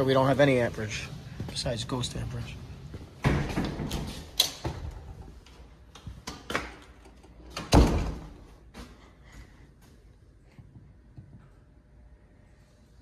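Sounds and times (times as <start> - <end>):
door shutting with heavy thud: 7.6 - 8.4.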